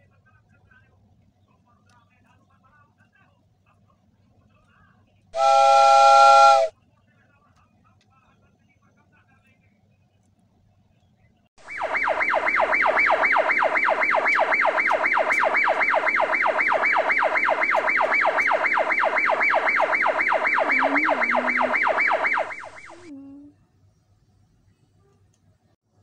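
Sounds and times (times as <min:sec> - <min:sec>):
electronic siren yelping: 0:05.4 - 0:06.7, 0:11.6 - 0:23.1.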